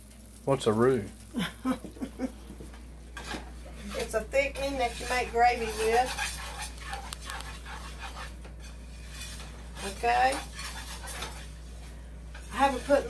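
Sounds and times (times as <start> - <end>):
metal utensil scraping a skillet: 3.1 - 13.0.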